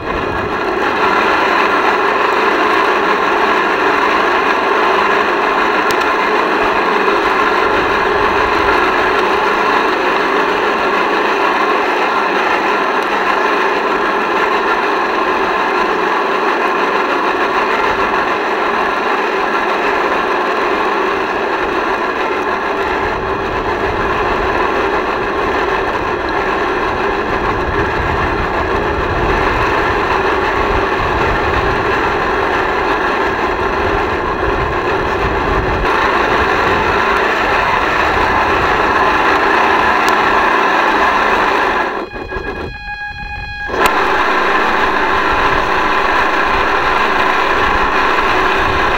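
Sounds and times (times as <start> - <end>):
small boat motor whining: 0.0 - 48.9
microphone rumble: 33.5 - 48.9.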